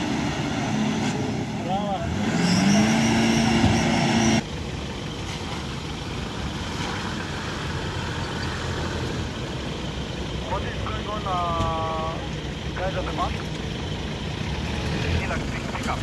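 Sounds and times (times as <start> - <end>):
engine revving under load: 0.0 - 4.5, 14.1 - 16.0
engine rumble driving slowly: 0.0 - 16.0.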